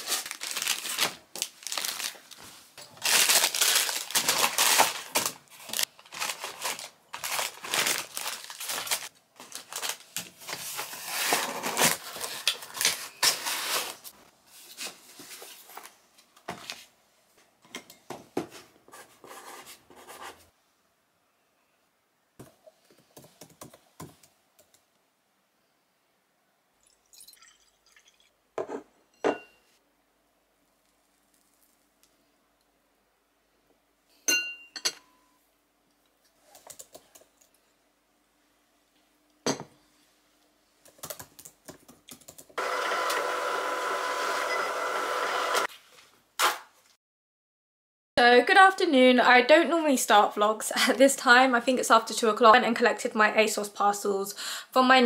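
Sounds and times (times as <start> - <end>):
packaging crinkling and rustling: 0.0 - 16.0.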